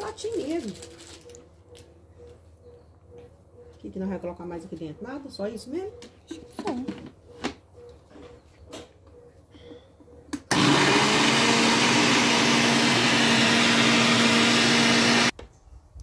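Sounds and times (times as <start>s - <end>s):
blender whirring: 10.5s - 15.3s.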